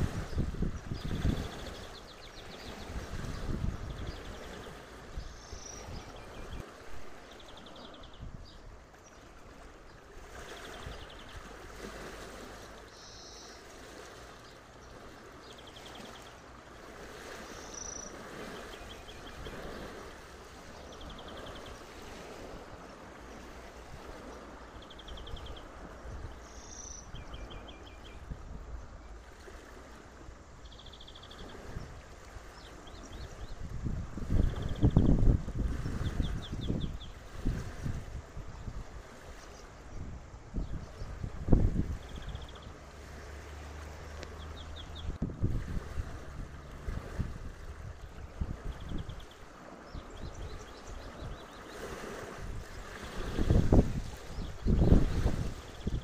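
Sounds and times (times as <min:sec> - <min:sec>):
wind rumbling on microphone: 0:00.0 - 0:56.0
small birds chirping: 0:00.3 - 0:06.6, 0:09.9 - 0:11.6, 0:12.7 - 0:13.7, 0:17.4 - 0:20.0, 0:20.6 - 0:21.9, 0:24.2 - 0:28.4, 0:30.6 - 0:33.7, 0:39.3 - 0:42.8, 0:44.0 - 0:45.2, 0:48.2 - 0:51.9, 0:52.7 - 0:56.0.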